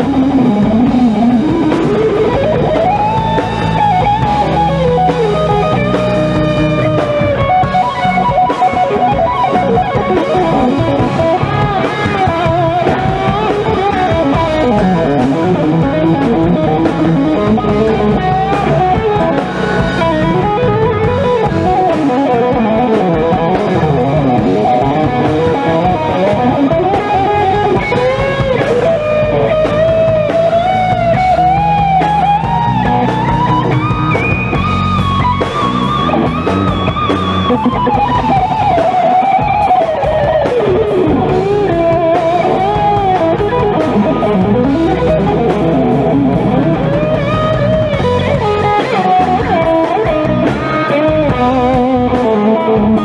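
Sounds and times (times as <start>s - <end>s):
drum kit: 0.0s - 53.0s
electric guitar lead melody: 0.0s - 53.0s.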